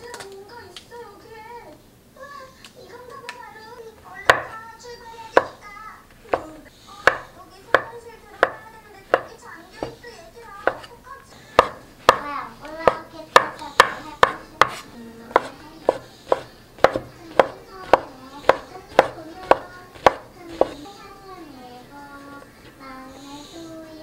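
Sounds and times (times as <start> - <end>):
knife chopping on wooden board: 4.2 - 4.6, 5.4 - 5.6, 6.3 - 10.0, 10.6 - 10.9, 11.5 - 20.8.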